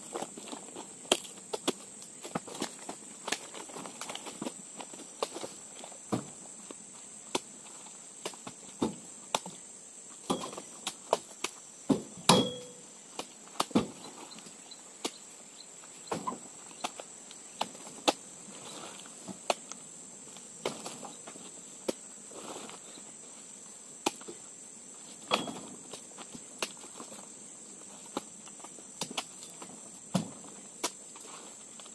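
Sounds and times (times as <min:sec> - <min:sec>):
high insect buzz: 0:00.0 - 0:31.9
fruit bunches thumping into truck bed: 0:10.2 - 0:11.3, 0:11.9 - 0:12.8, 0:13.6 - 0:14.0, 0:25.2 - 0:25.9, 0:30.1 - 0:30.4
short metallic ring: 0:12.3 - 0:12.8.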